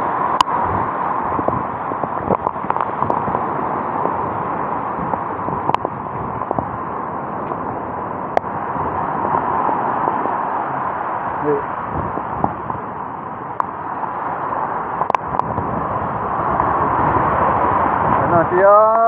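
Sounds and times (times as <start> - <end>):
rain: 0.0 - 19.0
storm wind: 0.0 - 19.0
sharp clicks and knocks: 15.0 - 15.5.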